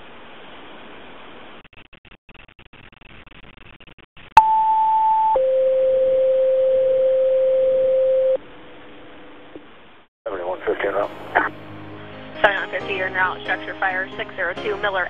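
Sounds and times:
faint radio static: 10.3s - 11.6s.

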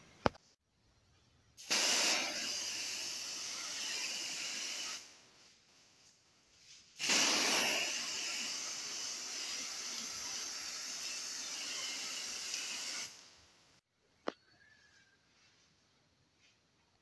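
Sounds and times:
aerosol spray can hissing: 1.6s - 5.1s, 7.0s - 13.2s.

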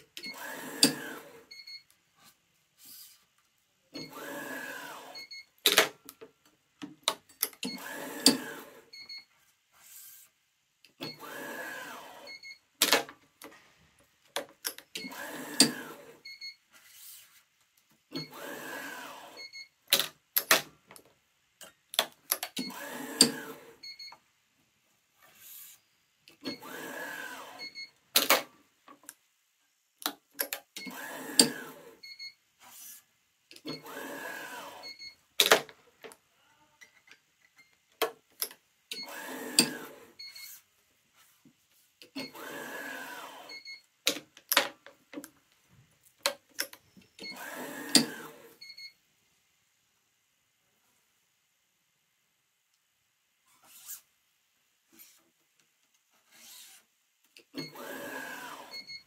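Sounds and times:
stringing machine motor whir: 0.2s - 1.5s, 4.0s - 5.3s, 7.6s - 8.9s, 11.1s - 12.4s, 15.0s - 16.2s, 18.2s - 19.5s, 22.6s - 23.8s, 26.4s - 27.8s, 30.8s - 32.0s, 33.7s - 35.0s, 39.0s - 40.6s, 42.2s - 43.6s, 47.2s - 48.6s, 57.6s - 59.0s.

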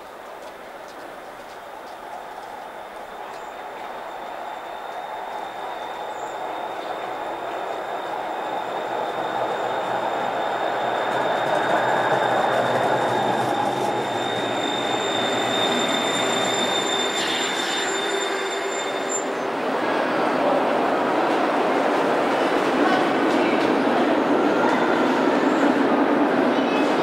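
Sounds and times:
tram wheels on rails: 0.0s - 27.0s
high-pitched whine: 4.1s - 19.4s.

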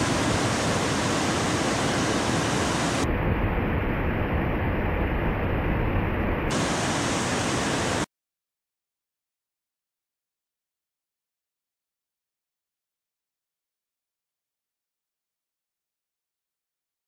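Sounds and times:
ocean surf breaking: 0.0s - 3.1s, 6.5s - 8.1s.

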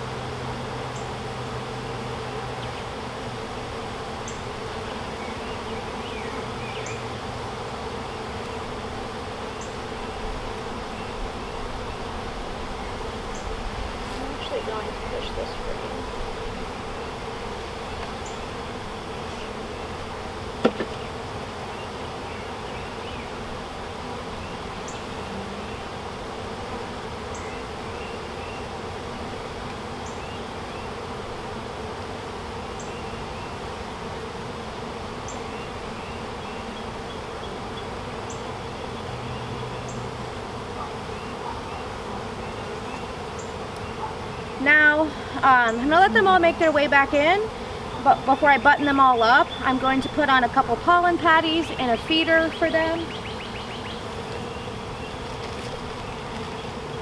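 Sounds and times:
honeybees buzzing: 0.0s - 57.0s
sharp knock: 20.6s - 21.0s.

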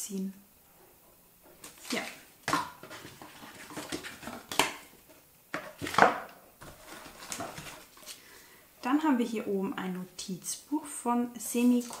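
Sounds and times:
products rustling and knocking: 1.4s - 8.2s.

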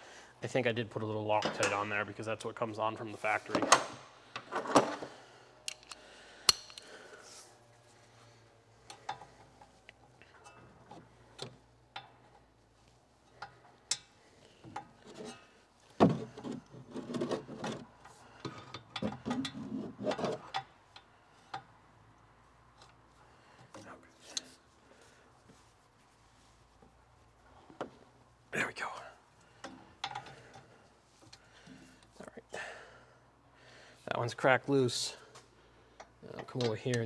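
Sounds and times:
hand tools clicking and knocking: 5.6s - 7.0s, 16.0s - 21.7s, 29.6s - 30.7s.

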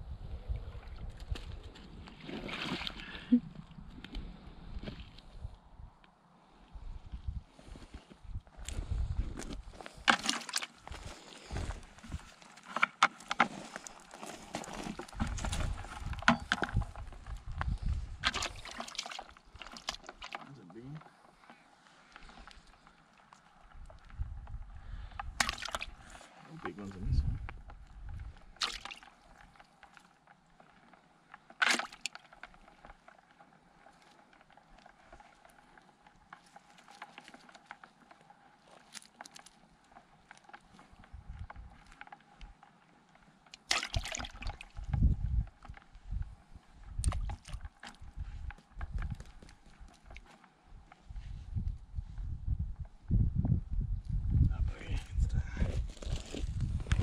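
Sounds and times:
footsteps on dry dirt: 13.4s - 18.2s
faint clicks and scratches: 25.9s - 43.6s.

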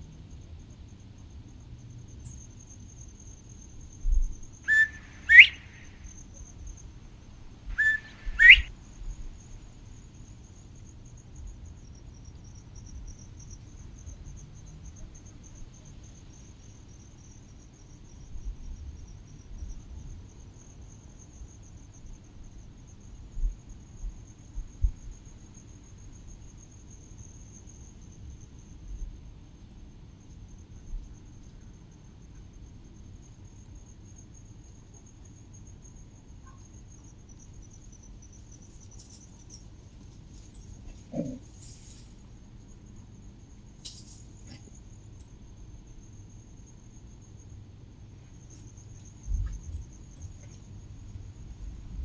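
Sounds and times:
insects trilling: 0.0s - 52.0s
whistled calls sweeping upward: 4.7s - 5.9s, 7.8s - 8.7s.

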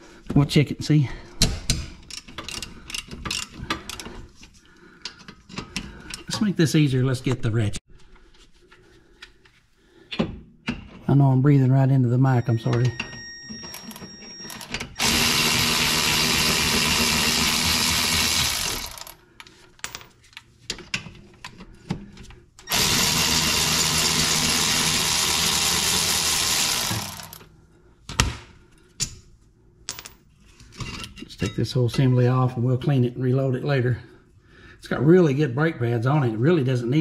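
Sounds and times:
power ratchet spinning bolts: 14.6s - 19.2s, 22.7s - 27.5s
tool handling clicks and knocks: 18.9s - 22.4s.

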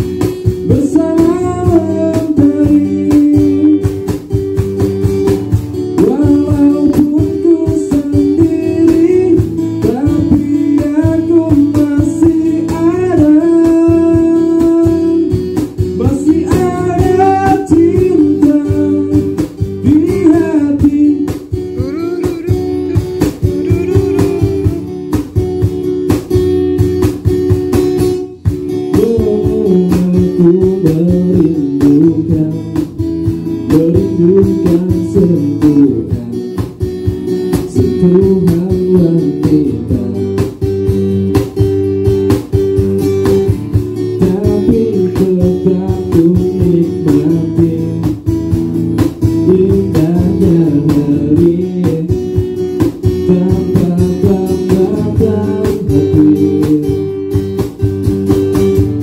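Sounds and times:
acoustic guitar strummed: 0.0s - 59.0s
cajon beat: 0.0s - 59.0s
person singing melody: 0.6s - 4.2s, 6.0s - 25.6s, 28.2s - 36.8s, 37.6s - 40.6s, 43.9s - 48.2s, 49.4s - 52.6s, 53.2s - 57.3s.

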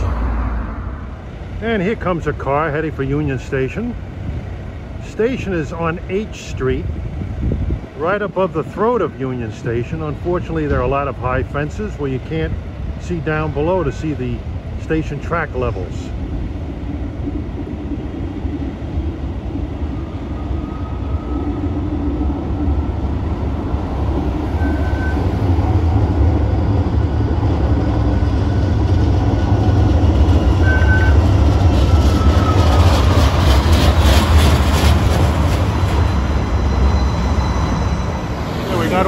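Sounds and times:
tram rumble of motors and wheels: 0.0s - 39.0s
high beeps: 30.6s - 31.3s.

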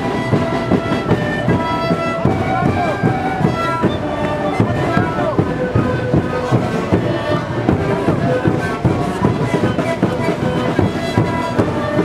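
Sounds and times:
large drums beating: 0.0s - 12.0s
panpipes playing held notes: 0.0s - 12.0s.

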